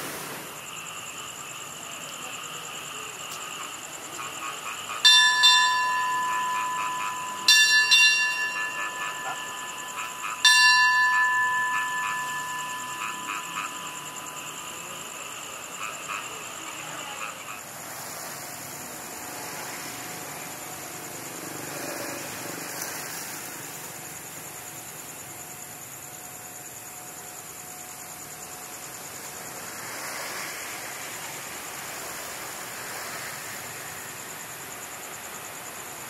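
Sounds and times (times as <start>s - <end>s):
high insect chirring: 0.4s - 36.0s
railway station bell clanging: 4.7s - 16.7s.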